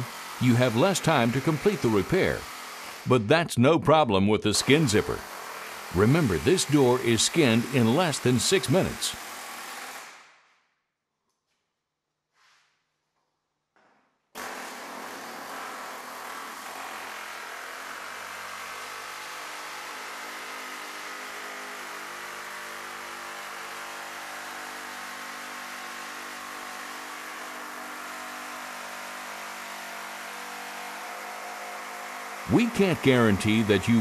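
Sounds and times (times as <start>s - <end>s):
pneumatic air hammer buzzing: 0.0s - 3.1s, 4.7s - 10.4s.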